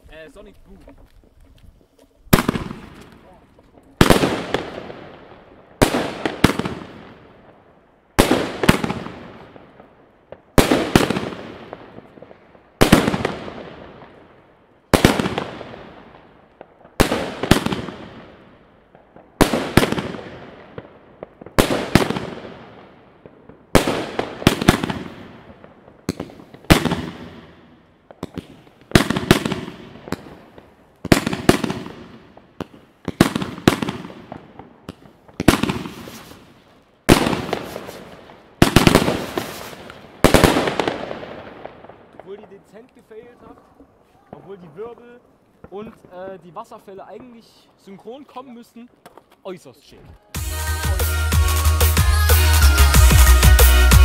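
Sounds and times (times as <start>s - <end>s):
fireworks shots: 2.3s - 48.2s.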